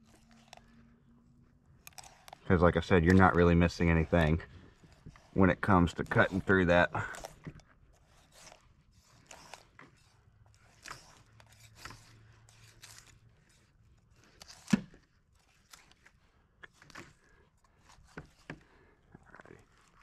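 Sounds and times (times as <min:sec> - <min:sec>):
knife cutting through fish bones: 0:01.8 - 0:18.8.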